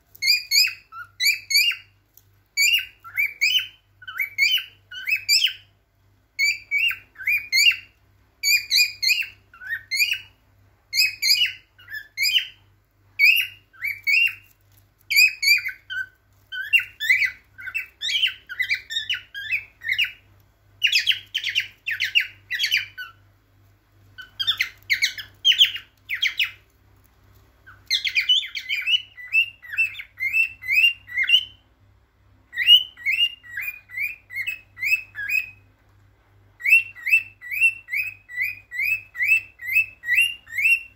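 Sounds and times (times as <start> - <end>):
cockatiel whistled chirps: 0.2 - 2.0, 2.6 - 5.7, 6.4 - 14.5, 15.1 - 23.2, 24.2 - 26.6, 27.6 - 31.6, 32.5 - 35.7, 36.6 - 40.9.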